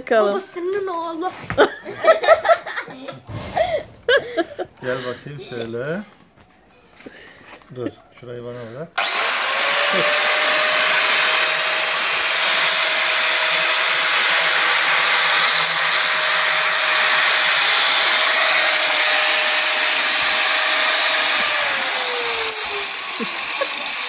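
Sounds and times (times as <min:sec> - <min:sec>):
angle grinder motor whine: 0:09.0 - 0:24.0
sanding disc rasping on wood: 0:09.0 - 0:24.0.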